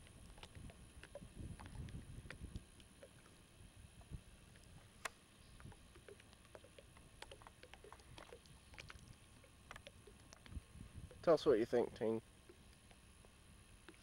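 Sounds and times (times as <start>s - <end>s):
faint ticks: 4.0s - 11.3s, 12.4s - 14.0s.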